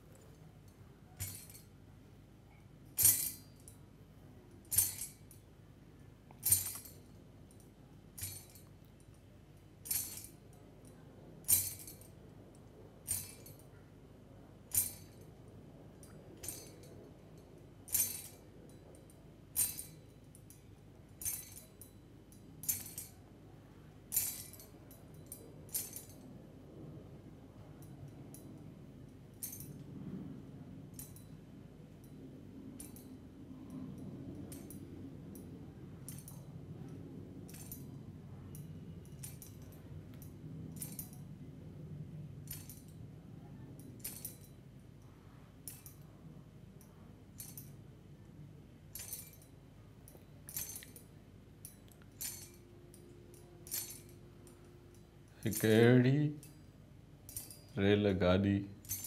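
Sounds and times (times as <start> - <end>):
tambourine jingles: 3.0 - 3.7, 50.4 - 51.0, 51.6 - 54.2, 58.7 - 59.0.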